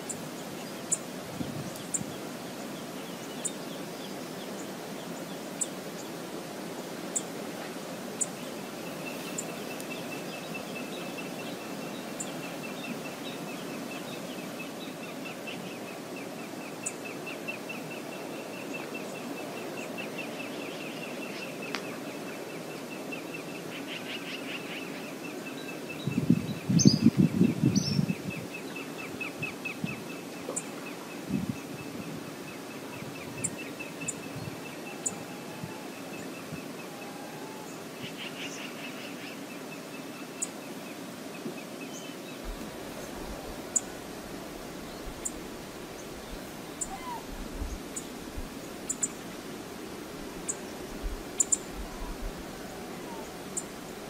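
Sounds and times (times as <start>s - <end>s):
rushing river water: 0.0s - 26.7s, 27.4s - 54.0s
bird trilling: 46.8s - 47.2s.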